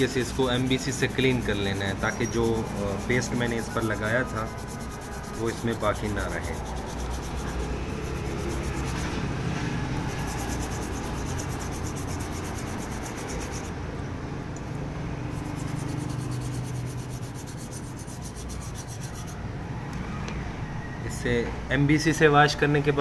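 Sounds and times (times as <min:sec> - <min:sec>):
brush scrubbing circuit board: 0:00.0 - 0:13.8, 0:15.3 - 0:19.4
steady low hum: 0:00.0 - 0:19.7.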